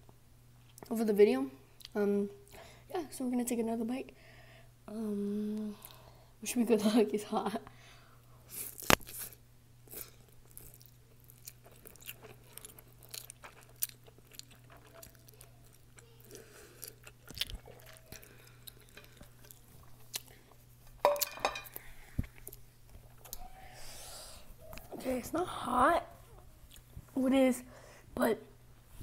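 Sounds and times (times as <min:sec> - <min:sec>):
person chewing noodles: 0:08.5 - 0:21.0.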